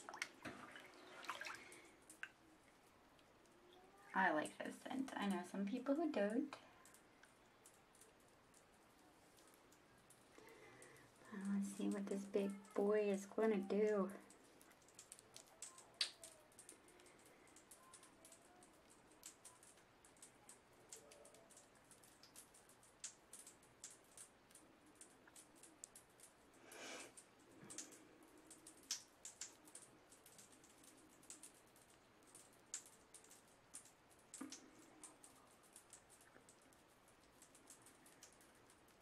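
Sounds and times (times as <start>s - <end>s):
bath bomb fizzing: 0.0s - 2.9s.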